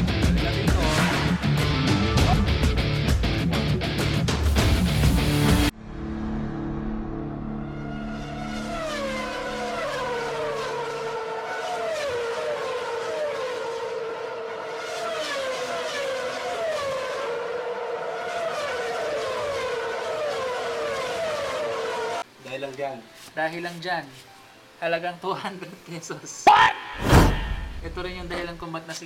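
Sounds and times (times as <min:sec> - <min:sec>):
background music: 0:00.0 - 0:07.9
motorcycle engine revving high: 0:07.6 - 0:22.2.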